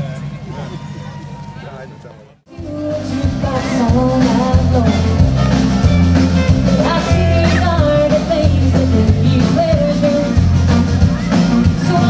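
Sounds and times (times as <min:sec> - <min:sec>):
person singing: 0:02.5 - 0:05.7, 0:06.7 - 0:10.5, 0:11.6 - 0:12.0.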